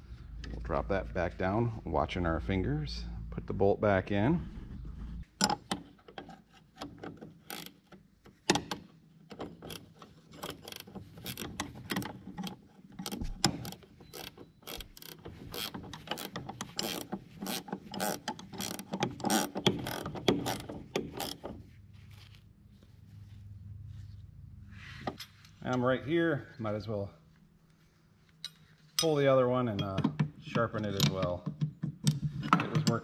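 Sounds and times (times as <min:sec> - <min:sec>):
hand tools clanking on metal: 0:28.5 - 0:31.6.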